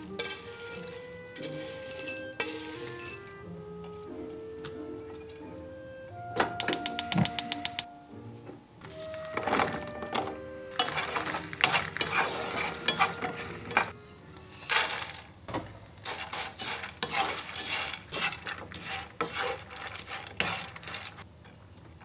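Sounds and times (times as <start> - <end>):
food sizzling in a frying pan: 0.0 - 3.0
wooden spoon scraping a pan: 0.0 - 5.5, 8.9 - 21.3.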